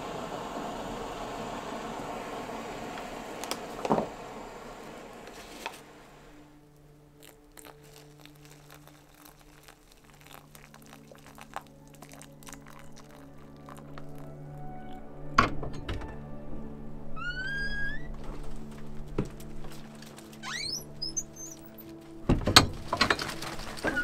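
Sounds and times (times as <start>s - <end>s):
hot water pouring: 0.0s - 6.4s, 7.2s - 15.0s
steady hiss: 0.0s - 12.0s
faint low music tones: 5.1s - 24.0s
foil pouch crinkling: 7.2s - 14.2s, 18.2s - 24.0s.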